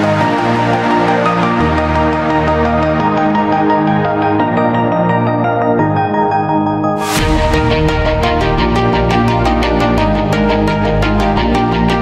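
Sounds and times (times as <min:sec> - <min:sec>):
sustained synth chords: 0:00.0 - 0:12.0
cymbal crash: 0:07.0 - 0:09.9.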